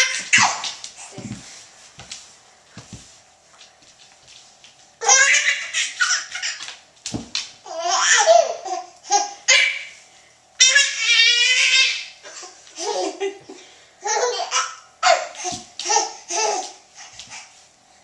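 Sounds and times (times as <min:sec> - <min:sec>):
baby laughing: 0:00.0 - 0:00.8, 0:05.0 - 0:06.7, 0:07.7 - 0:09.9, 0:10.6 - 0:16.8.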